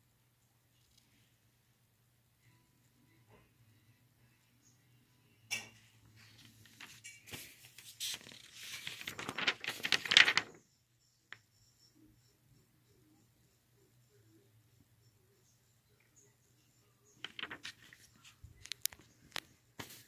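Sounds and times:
paper sheets rustling: 6.1s - 10.6s, 17.2s - 20.0s.

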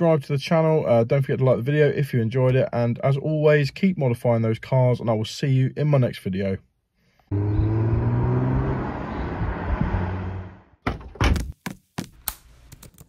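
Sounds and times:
cartoon car engine hum: 7.3s - 10.8s.

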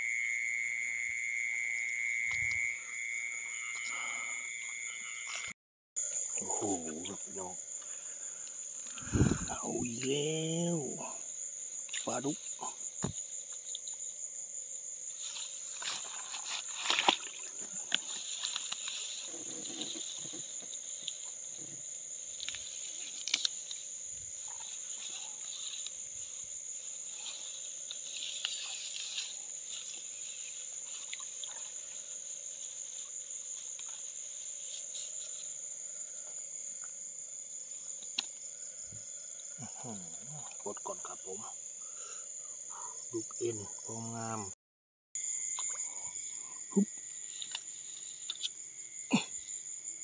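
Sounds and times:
high cricket trill: 0.0s - 44.6s, 45.2s - 50.0s
low insect drone: 0.0s - 44.6s, 45.2s - 50.0s
rustling: 15.1s - 35.6s.

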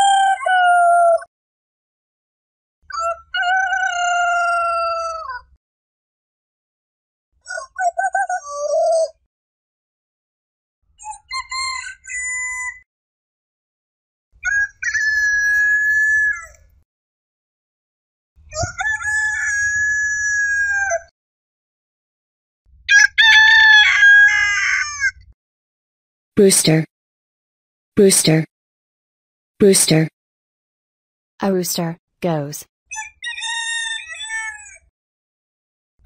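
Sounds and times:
roosters crowing: 3.4s - 5.2s, 18.6s - 21.0s, 22.9s - 25.1s.

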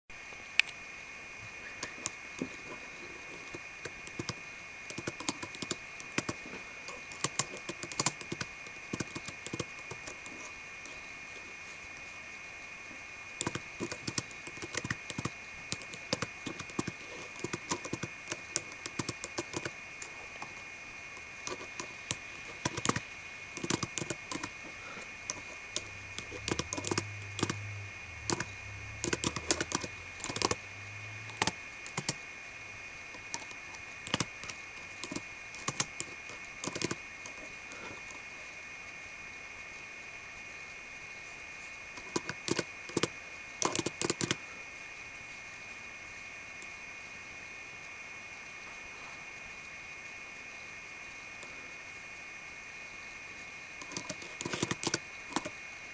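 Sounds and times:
fingernails clacking on keyboard: 4.1s - 6.4s, 7.1s - 10.2s, 13.4s - 19.7s, 21.5s - 23.0s, 23.6s - 24.5s, 25.3s - 27.6s, 28.2s - 30.6s, 31.3s - 32.2s, 33.2s - 34.3s, 35.0s - 37.0s, 42.0s - 44.4s, 53.8s - 55.5s.

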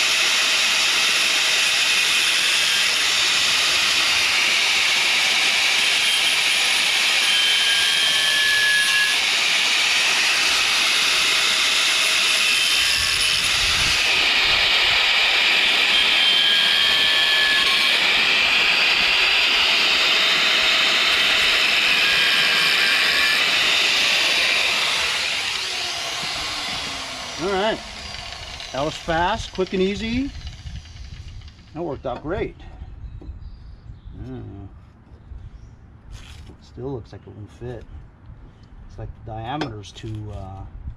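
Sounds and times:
angle grinder cutting metal: 0.0s - 31.9s.

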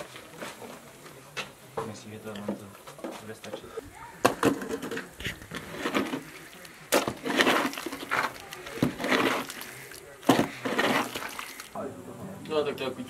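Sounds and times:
trowel scraping wet mortar: 4.6s - 11.8s
trowel knocking on bricks: 6.9s - 9.4s.

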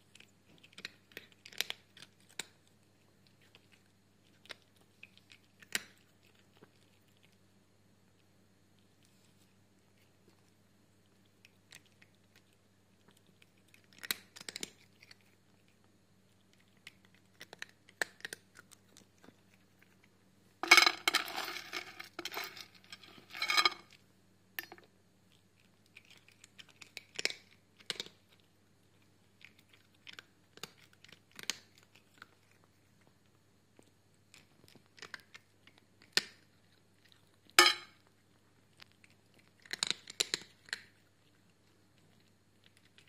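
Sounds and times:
cat chewing clicks: 0.0s - 7.4s, 11.0s - 20.1s, 24.6s - 37.6s, 38.3s - 43.0s.

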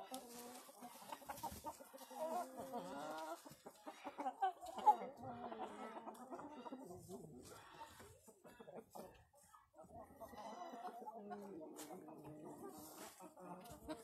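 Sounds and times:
wavering chicken calls: 0.0s - 9.2s
chickens clucking: 0.0s - 14.0s.

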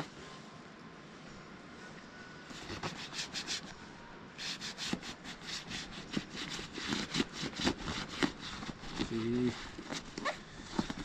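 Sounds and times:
hand rubbing leather: 4.4s - 11.0s.

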